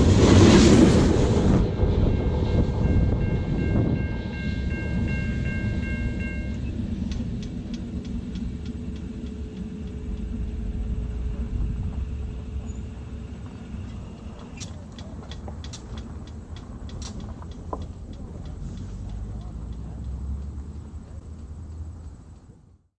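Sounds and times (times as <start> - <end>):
freight train rumble: 0.0 - 22.9
faint regular clicks: 13.9 - 22.6.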